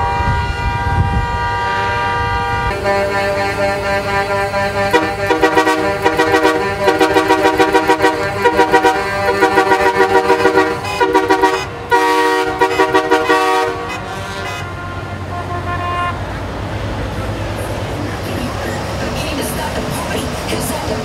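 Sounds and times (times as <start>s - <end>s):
vehicle horn rapid toots: 0.0s - 16.3s
faint steady horn tones: 0.0s - 16.5s.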